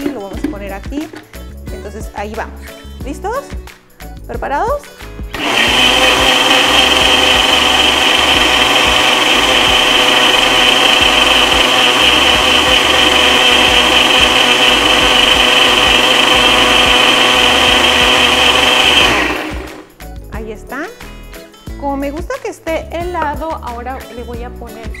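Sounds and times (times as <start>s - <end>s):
blender motor whine: 5.3s - 19.9s.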